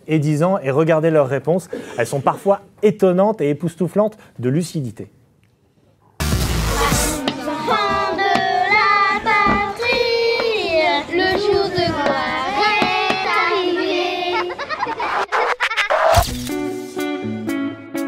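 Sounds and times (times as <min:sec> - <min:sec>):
backing track: 0:06.2 - 0:14.6, 0:16.2 - 0:18.0
high voice singing: 0:06.2 - 0:14.6.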